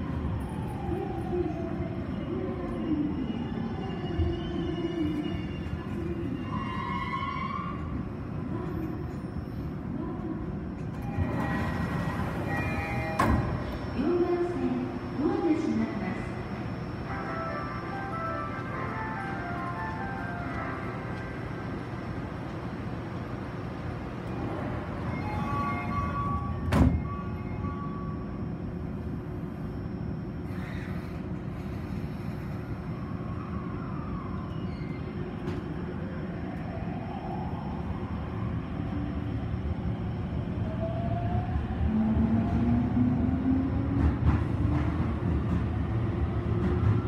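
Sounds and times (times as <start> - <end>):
train doors thudding shut: 10.8 - 13.9, 26.3 - 27.2.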